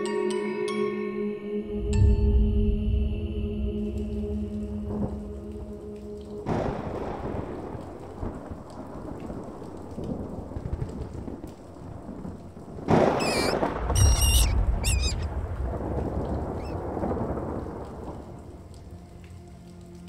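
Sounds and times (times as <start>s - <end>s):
steady rain: 3.7s - 20.0s
rolling thunder: 6.4s - 19.0s
high wavering cries: 13.1s - 15.3s.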